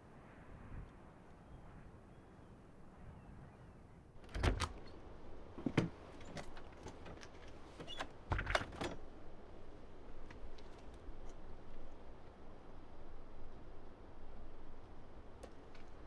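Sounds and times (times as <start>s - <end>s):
door latch clicks and knocks: 4.2s - 5.0s.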